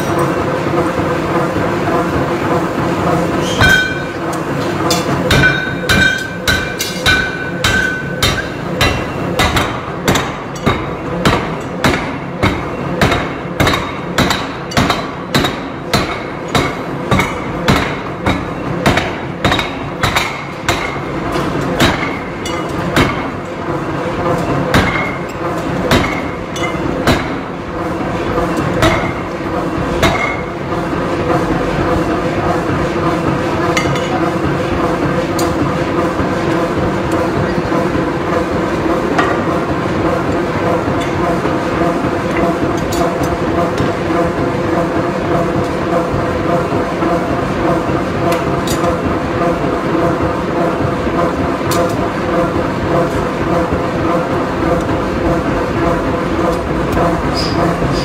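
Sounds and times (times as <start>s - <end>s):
machinery hum: 0.0s - 58.0s
power hammer pounding metal: 3.4s - 31.5s.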